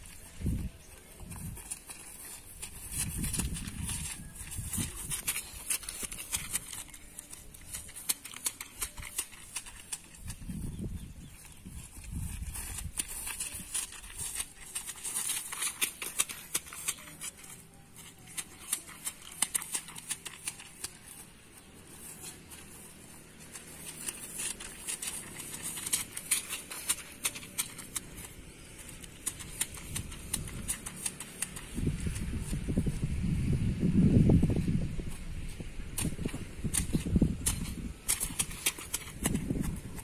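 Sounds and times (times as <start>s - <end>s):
footsteps on grass: 0.0s - 40.0s.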